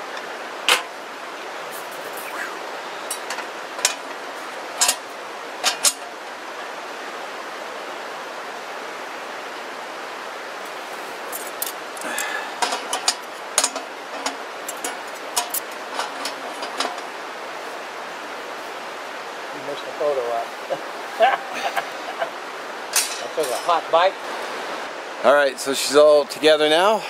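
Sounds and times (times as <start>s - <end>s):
steady background hiss: 0.0s - 27.0s
metal panels clanking: 0.6s - 1.0s, 3.1s - 6.3s, 12.6s - 17.2s, 22.9s - 23.8s.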